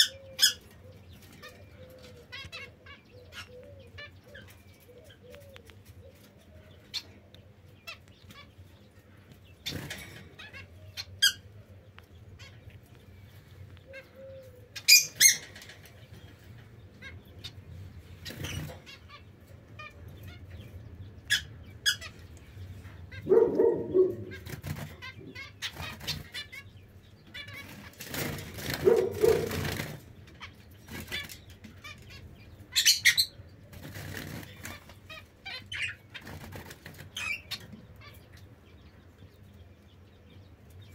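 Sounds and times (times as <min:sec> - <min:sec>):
finches chirping: 0:07.8 - 0:40.9
bird wings flapping: 0:27.9 - 0:30.0.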